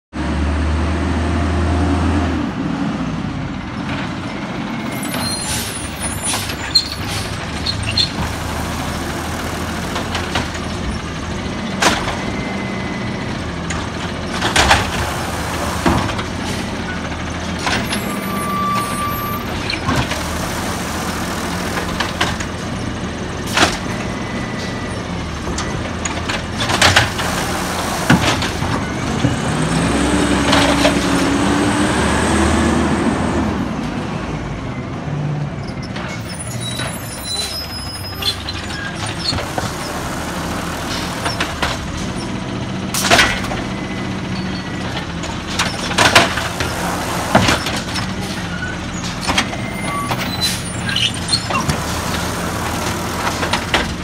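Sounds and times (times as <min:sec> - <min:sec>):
garbage truck running: 0:00.2 - 0:54.0
hydraulic arm lifting cart: 0:04.1 - 0:31.3, 0:35.6 - 0:54.0.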